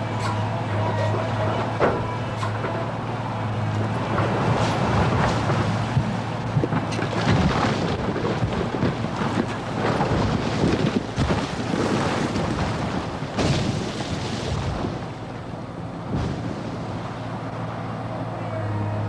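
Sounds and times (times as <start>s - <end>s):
diesel engine humming: 0.0s - 19.0s
bricks and rubble crashing down: 4.2s - 14.5s.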